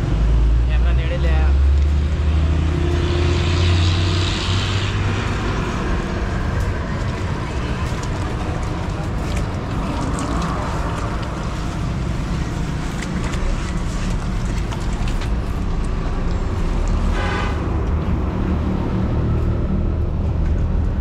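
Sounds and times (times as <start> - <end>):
water splashing and dripping: 4.8 - 17.2
low engine rumble: 4.9 - 21.0.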